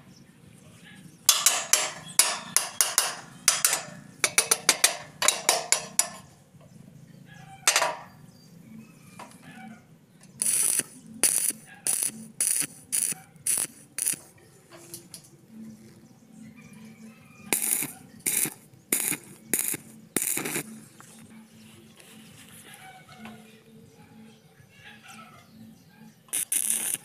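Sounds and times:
sharp bursts of steel work: 1.3s - 6.3s, 10.4s - 14.3s, 17.5s - 20.7s, 26.3s - 27.0s.

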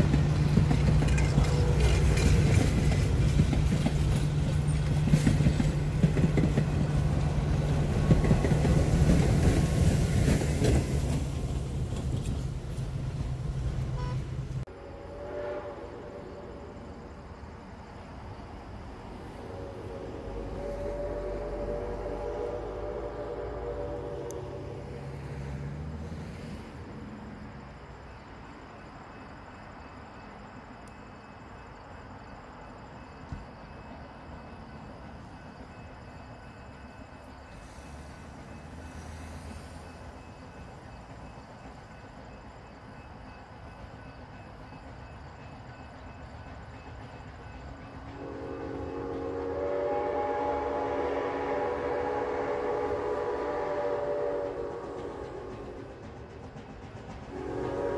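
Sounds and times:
low rumble of road traffic: 0.0s - 57.9s
steam locomotive whistle: 1.2s - 2.9s, 13.9s - 16.8s, 19.3s - 25.9s, 48.0s - 56.0s, 57.3s - 57.9s.

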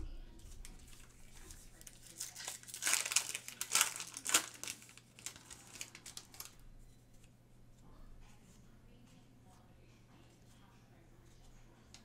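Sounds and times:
cards rustling: 0.4s - 6.6s
foil wrapper crinkling and tearing: 0.4s - 6.6s.

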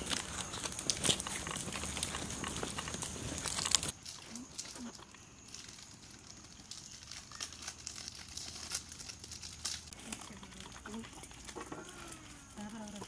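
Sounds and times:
wrapper tearing and crinkling: 0.0s - 13.0s.

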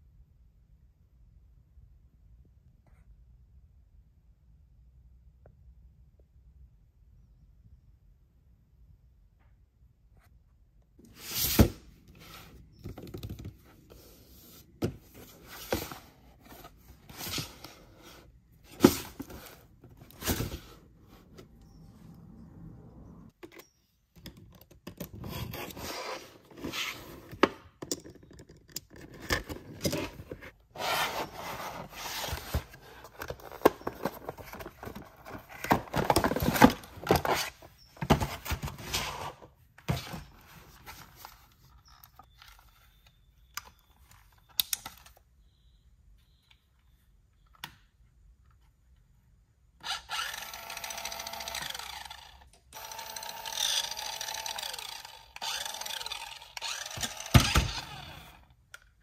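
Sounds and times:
packaging rustling and scraping: 13.7s - 21.6s, 25.2s - 27.4s, 29.0s - 43.2s.

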